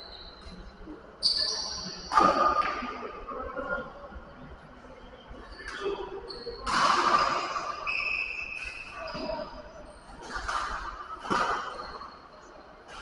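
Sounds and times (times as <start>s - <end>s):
shoes squeaking on court floor: 0.0s - 2.1s, 5.5s - 13.0s
echoing voices: 0.0s - 13.0s.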